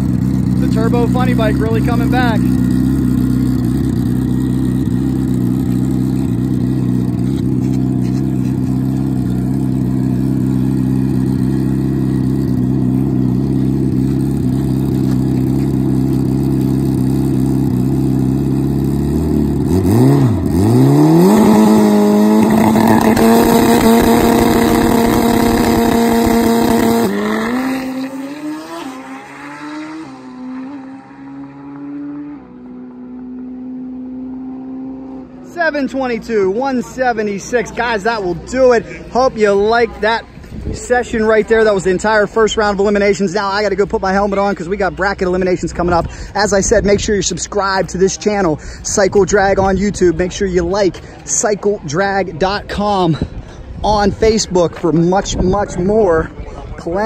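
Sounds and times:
motorcycle engine idling: 0.0s - 19.8s
motorcycle accelerating away: 0.0s - 35.5s
motorcycle engine revving: 0.0s - 45.5s.

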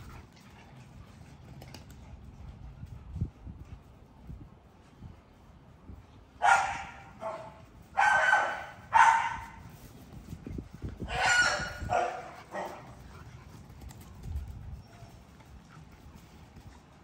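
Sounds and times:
puppy barking: 6.4s - 9.6s, 11.0s - 12.9s.

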